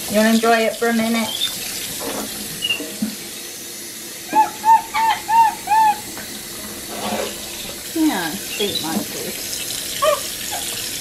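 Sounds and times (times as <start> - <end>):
water running in a sink: 0.0 - 11.0
monkey calls: 4.3 - 6.2, 10.0 - 10.8.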